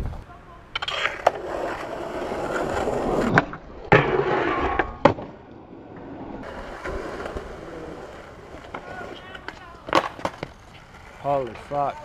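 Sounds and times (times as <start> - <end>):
skateboard wheels rolling on concrete: 0.0 - 12.0
skateboard grinding on metal rail: 0.7 - 11.7
skateboard clacking: 6.4 - 12.0.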